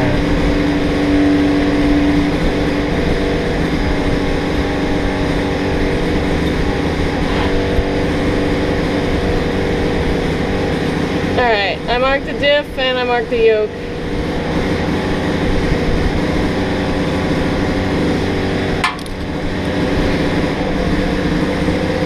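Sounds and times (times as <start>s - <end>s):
high engine tone: 0.0s - 22.0s
small engine running: 0.0s - 22.0s.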